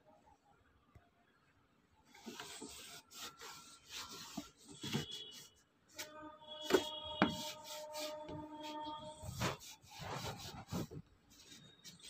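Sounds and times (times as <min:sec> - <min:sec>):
cloth rubbing on plastic: 0:02.1 - 0:12.0
cloth squeaking on plastic: 0:02.9 - 0:12.0.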